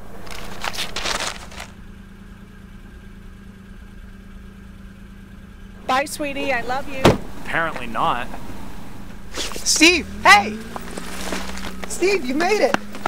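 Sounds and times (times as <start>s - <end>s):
rustling: 0.0s - 1.9s, 9.0s - 9.8s, 10.6s - 13.0s
car engine idling: 0.0s - 13.0s.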